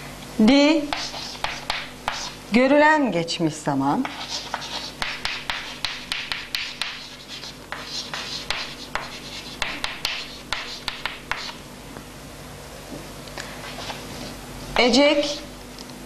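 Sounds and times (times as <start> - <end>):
chalk scratching on chalkboard: 0.9 - 2.4, 4.0 - 11.6, 13.6 - 14.4.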